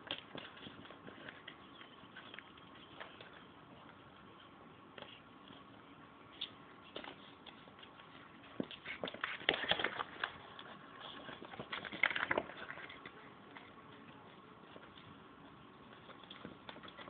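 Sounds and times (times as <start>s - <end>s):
dog clicking and scuffling: 0.0s - 5.7s, 6.4s - 17.0s.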